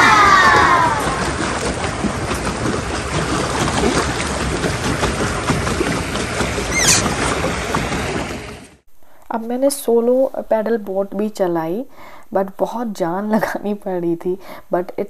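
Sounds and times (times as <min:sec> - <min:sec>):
water churning and splashing: 0:00.0 - 0:08.8
rising squeak: 0:06.7 - 0:07.1.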